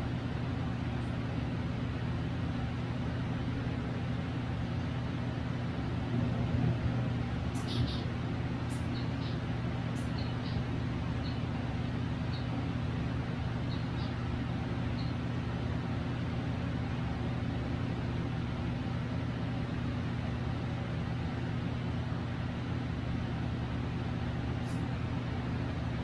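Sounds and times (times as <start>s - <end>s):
appliance humming: 0.0s - 26.0s
faint high chirps: 7.6s - 8.1s, 10.0s - 11.5s, 13.6s - 14.2s.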